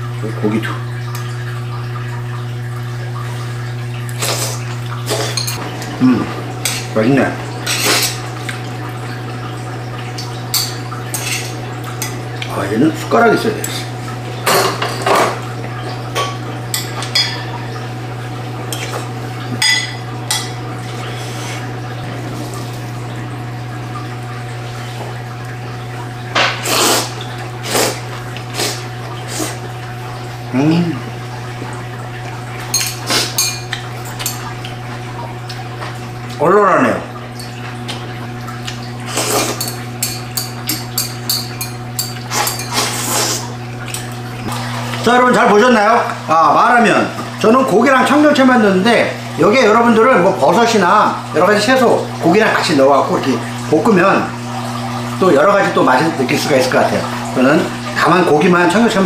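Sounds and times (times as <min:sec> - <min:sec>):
person slurping noodles: 0:04.2 - 0:05.4, 0:26.6 - 0:29.6, 0:33.0 - 0:33.4, 0:39.0 - 0:39.6, 0:42.3 - 0:43.6
utensils clinking on ceramic bowls: 0:05.1 - 0:05.9, 0:10.2 - 0:12.2, 0:14.4 - 0:15.4, 0:16.1 - 0:17.6, 0:19.6 - 0:20.6, 0:32.6 - 0:34.8, 0:38.7 - 0:43.3.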